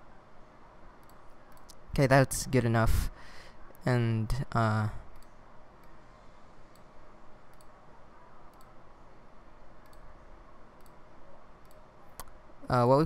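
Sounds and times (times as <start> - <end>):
faint microphone hiss: 0.0 - 13.0
computer mouse clicks: 1.0 - 1.8, 5.1 - 6.0, 6.7 - 7.8, 8.5 - 8.8, 9.8 - 10.2, 10.8 - 11.0, 11.6 - 12.4.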